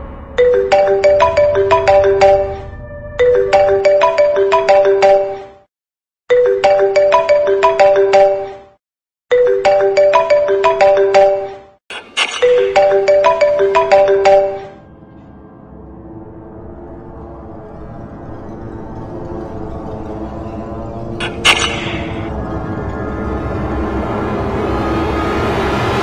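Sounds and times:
phone ringtone melody: 0.4 - 5.6, 6.3 - 14.8.

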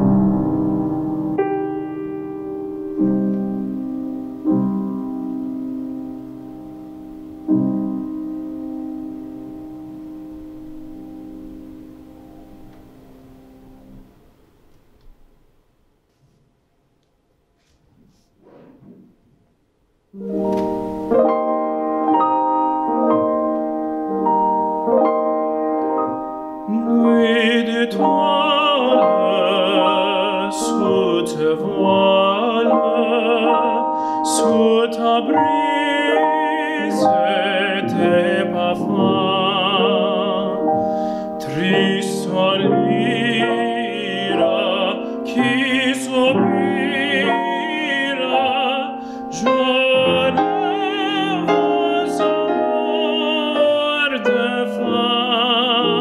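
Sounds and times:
grand piano playing: 0.0 - 15.4, 20.1 - 56.0
tenor singing with vibrato: 26.4 - 56.0.

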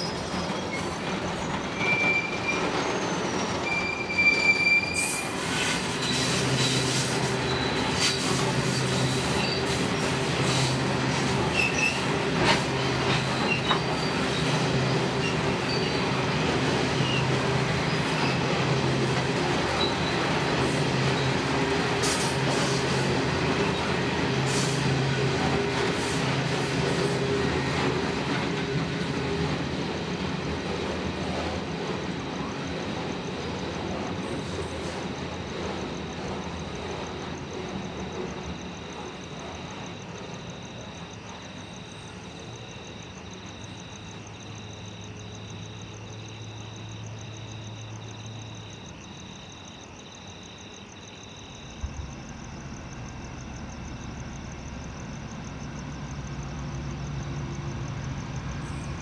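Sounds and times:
high-pitched wheel squeals: 0.0 - 6.8
train wheels rumbling on rail: 0.0 - 59.0.

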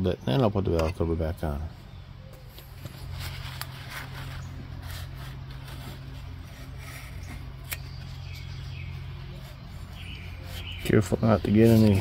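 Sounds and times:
steady low hum: 0.0 - 12.0
rag wiping engine: 3.8 - 12.0.

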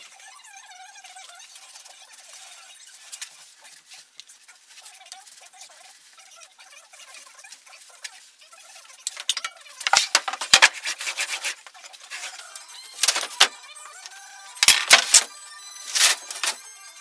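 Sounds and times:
wood boards rubbing and sliding: 9.2 - 13.5, 14.6 - 15.3.

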